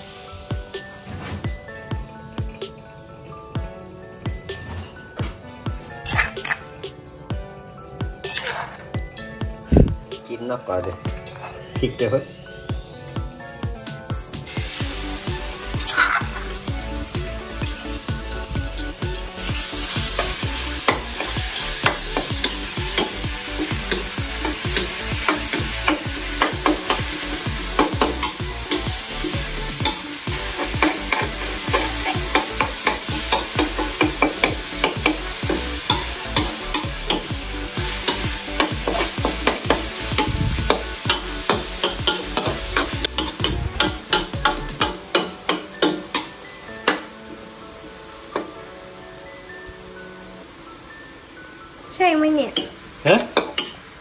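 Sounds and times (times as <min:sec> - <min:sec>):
steady sizzle: 0:00.0 - 0:54.0
spatula scraping a steel wok: 0:08.2 - 0:08.9, 0:38.0 - 0:45.6.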